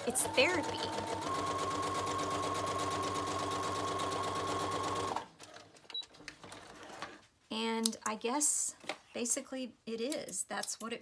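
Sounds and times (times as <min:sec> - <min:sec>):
sewing machine stitching paper: 0:00.0 - 0:05.6.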